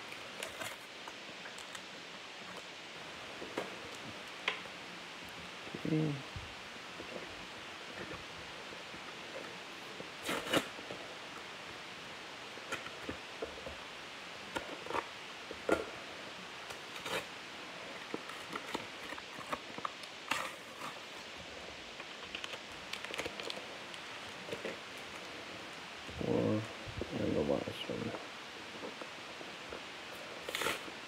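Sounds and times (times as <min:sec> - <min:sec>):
paper rustling: 0:22.0 - 0:25.2.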